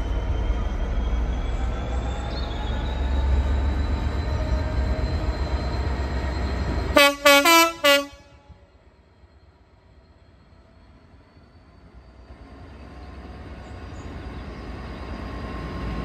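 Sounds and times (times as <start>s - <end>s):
train rumble: 0.0s - 16.0s
two-note train horn blasts: 7.0s - 8.6s.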